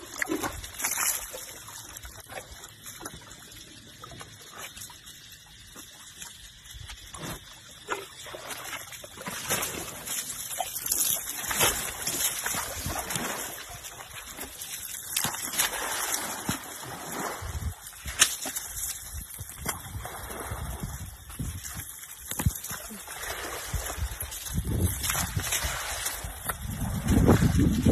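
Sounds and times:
water splashing and sloshing: 0.0s - 27.9s.

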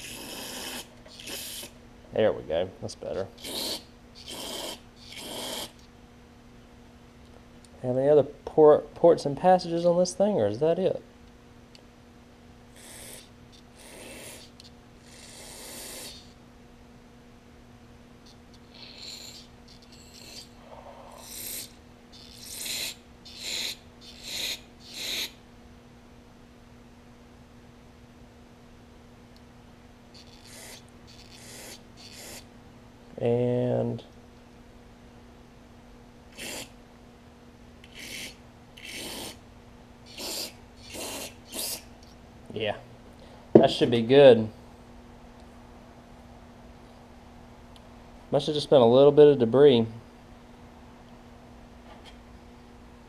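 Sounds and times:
aerosol spray hissing: 40.1s - 41.8s.

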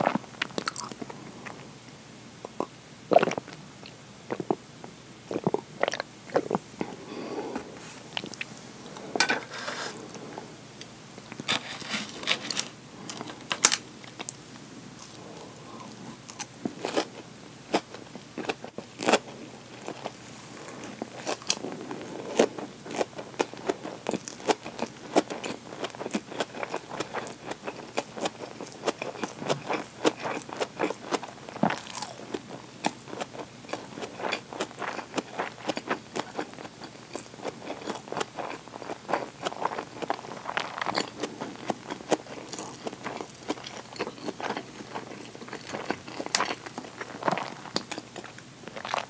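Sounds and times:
person chewing food: 0.0s - 1.6s, 2.5s - 4.6s, 5.3s - 9.3s, 15.0s - 49.0s.

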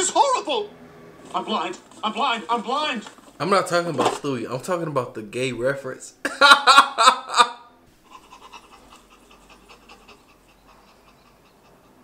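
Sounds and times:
dog panting: 8.0s - 12.0s.

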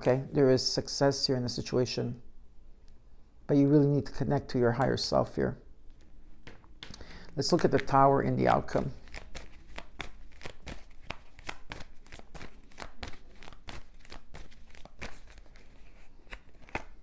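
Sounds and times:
cards being shuffled: 6.0s - 17.0s.

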